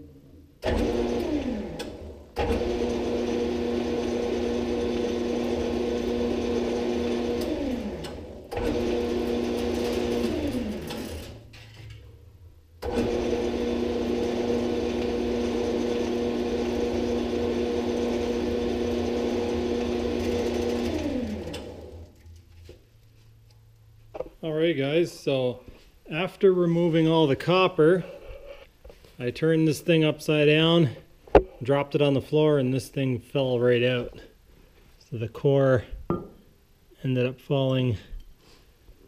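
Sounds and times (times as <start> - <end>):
lathe whining: 0.6 - 11.4, 12.8 - 22.2.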